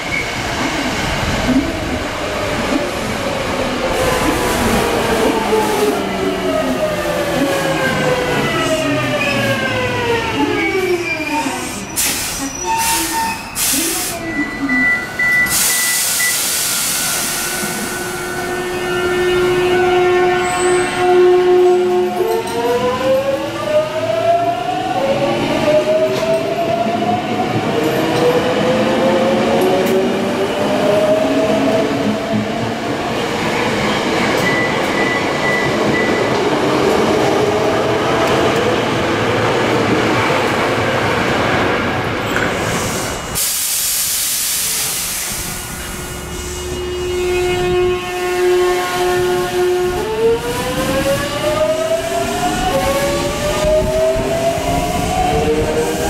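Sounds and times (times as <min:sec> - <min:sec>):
rail running noise: 0:00.0 - 0:56.0
burst of hiss: 0:42.6 - 0:45.8.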